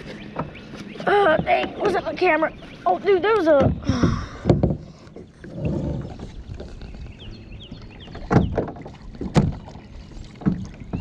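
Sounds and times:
wind: 0.0 - 11.0
hollow knocks on plastic hull: 3.6 - 5.0.

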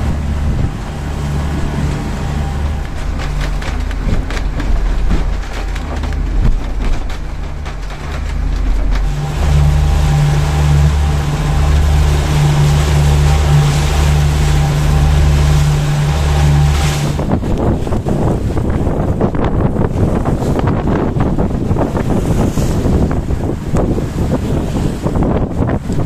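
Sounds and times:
boat engine droning: 0.0 - 26.0
wind buffeting the microphone: 0.0 - 26.0
knocks from the boat: 2.4 - 10.2.

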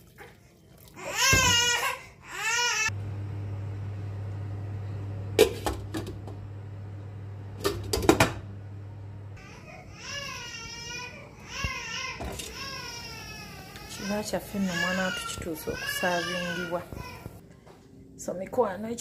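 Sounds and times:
baby crying: 1.0 - 2.9, 9.4 - 17.4
steady low hum: 2.9 - 9.5.

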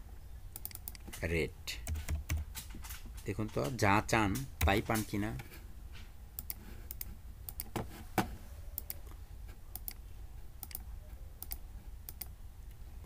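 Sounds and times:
computer mouse clicking: 0.6 - 1.1, 6.4 - 7.8, 8.8 - 10.0, 10.6 - 12.3.

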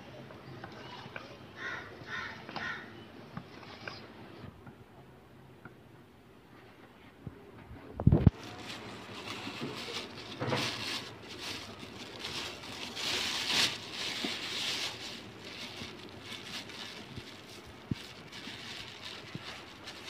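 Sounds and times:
plastic bag crinkling: 8.2 - 20.0.

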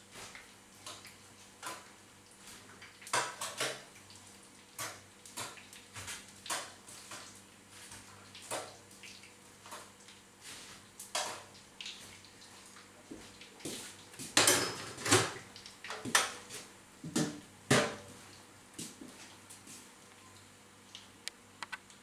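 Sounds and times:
metal kitchenware clattering: 14.4 - 15.4.

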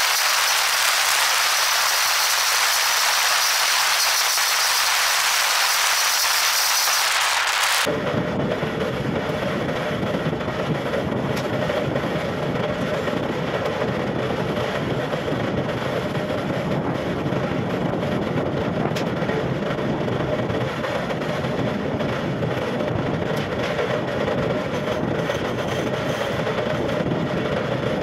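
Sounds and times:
wood lathe humming: 0.0 - 7.9.

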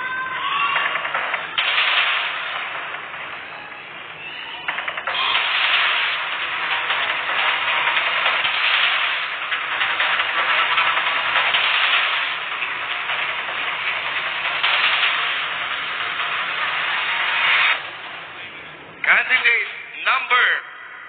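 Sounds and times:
large audience cheering and screaming: 0.0 - 1.2.

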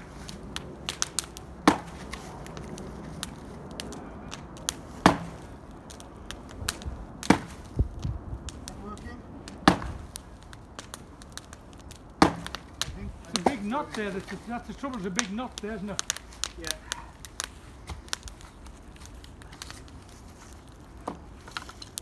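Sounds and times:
log hammering a wedge: 5.0 - 5.4, 7.2 - 7.6, 9.6 - 10.0, 12.2 - 12.6.

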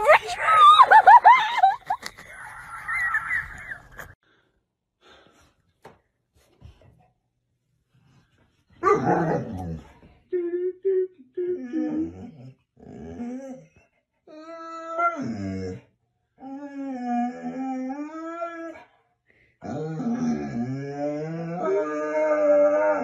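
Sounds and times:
dog moaning and whining: 8.8 - 19.0, 19.6 - 23.0.

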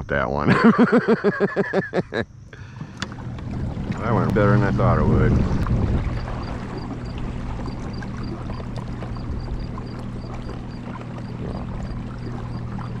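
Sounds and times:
electric motor hum: 1.9 - 13.0
water washing along hull: 2.6 - 13.0.

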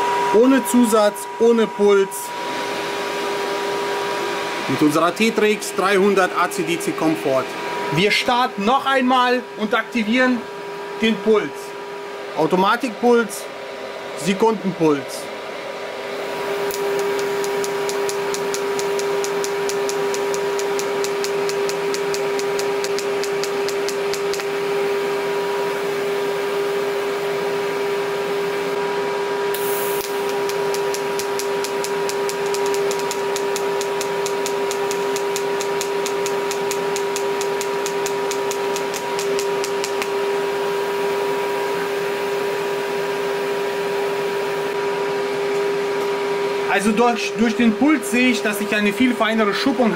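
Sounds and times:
welding arc hum with ticking: 16.4 - 26.0, 29.5 - 44.8.

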